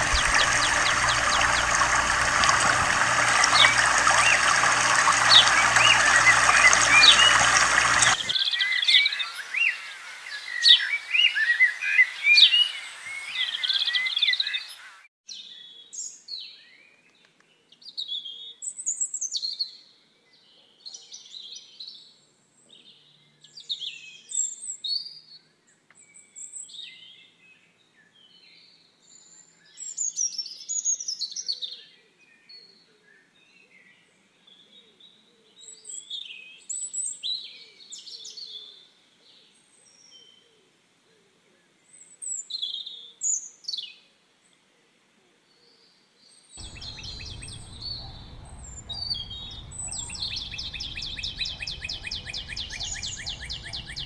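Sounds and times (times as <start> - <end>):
birds calling and chirping: 0.0 - 10.9, 46.6 - 54.0.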